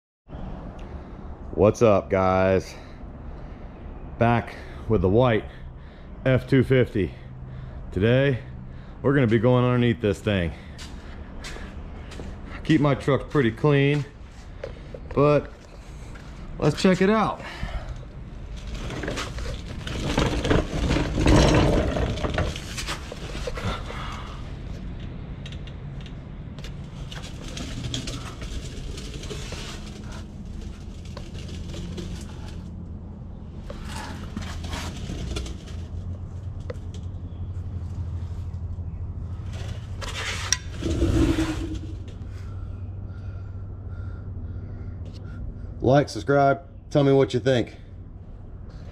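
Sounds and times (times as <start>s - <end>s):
low hum: 17.4s - 45.8s.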